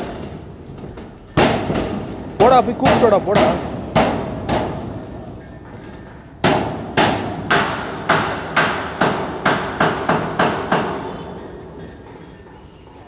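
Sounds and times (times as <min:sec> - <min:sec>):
hammer striking sheet metal: 0:01.3 - 0:11.5.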